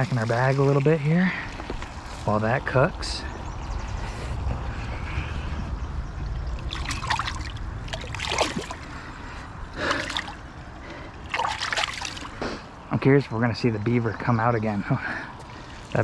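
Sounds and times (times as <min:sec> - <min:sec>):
water splashing and sloshing: 0:00.0 - 0:02.4, 0:06.2 - 0:12.6, 0:15.4 - 0:16.0.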